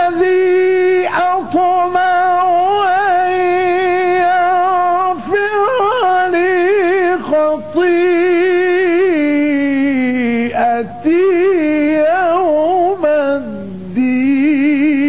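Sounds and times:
man chanting melodic recitation: 0.0s - 15.0s.

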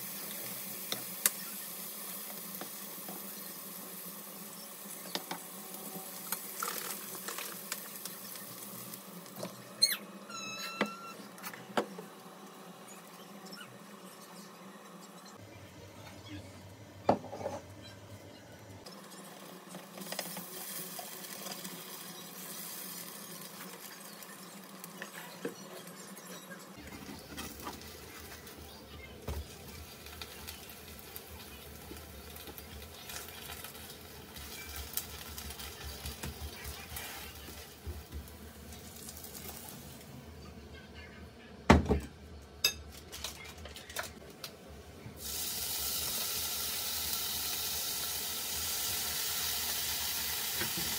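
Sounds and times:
pancake sizzling in a pan: 0.0s - 10.0s, 18.9s - 40.1s, 45.2s - 50.9s.

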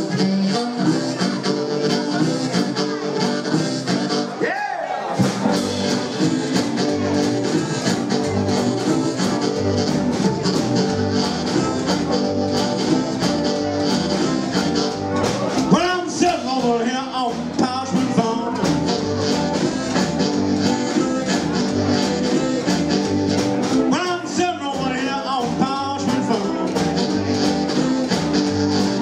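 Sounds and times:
live blues band playing: 0.0s - 29.0s.

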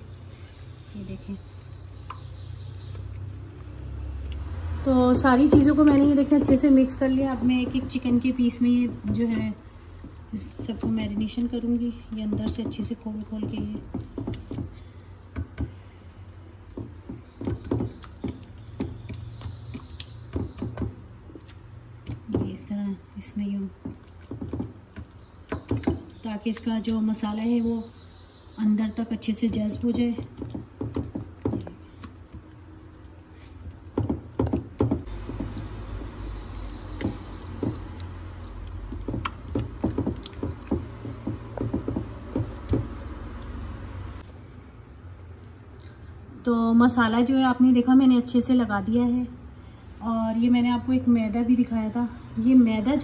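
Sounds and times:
wet squelching of marinade: 0.1s - 6.4s, 17.4s - 27.6s, 29.3s - 44.2s.

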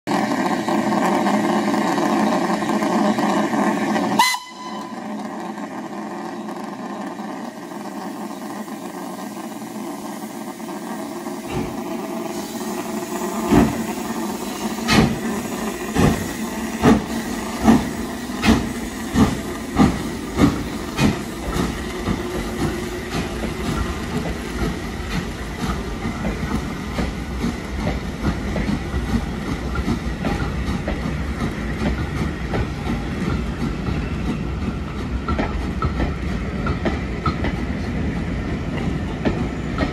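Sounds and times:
carriages rattling over rail joints: 0.1s - 39.9s
steam locomotive chuffing: 0.1s - 39.9s
loud blast of steam: 9.2s - 23.6s.

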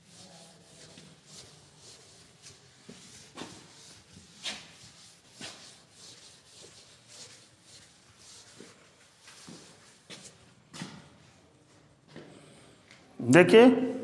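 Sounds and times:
eraser wiping chalkboard: 0.0s - 10.5s.

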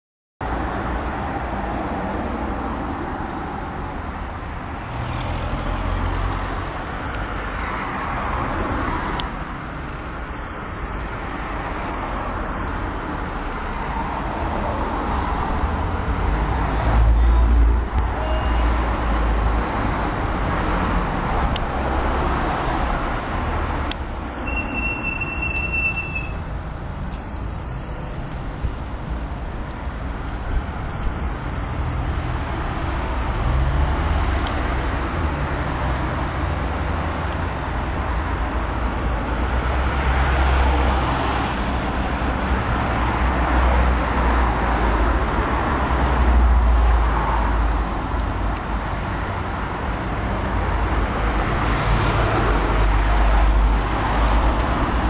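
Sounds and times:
cars and vans passing: 0.4s - 55.0s.

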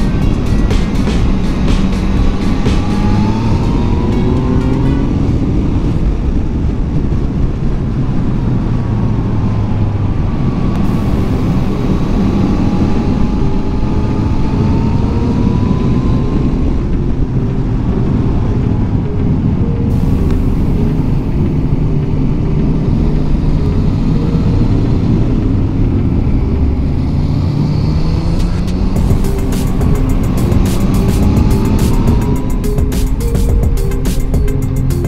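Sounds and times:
motorcycle engine running: 0.0s - 19.1s, 28.5s - 33.8s
wind noise on microphone: 0.0s - 35.0s.

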